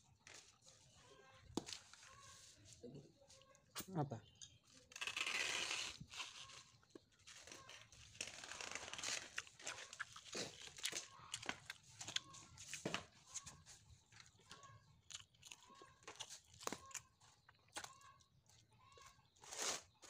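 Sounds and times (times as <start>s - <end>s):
crunching and crinkling of paper: 0.0s - 3.8s, 4.6s - 20.0s
chewing: 8.9s - 20.0s.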